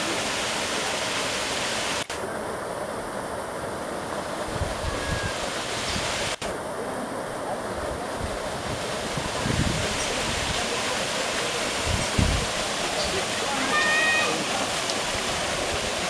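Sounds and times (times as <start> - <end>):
waterfall splashing into pool: 0.0 - 16.0
wind rumble on microphone: 4.5 - 6.2, 7.8 - 10.7, 11.8 - 12.6.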